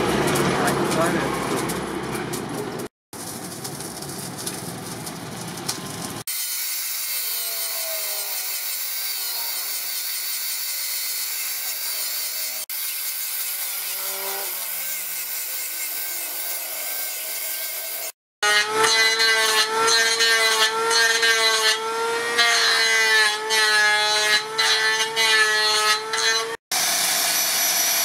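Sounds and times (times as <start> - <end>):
angle grinder grinding metal: 6.2 - 28.0.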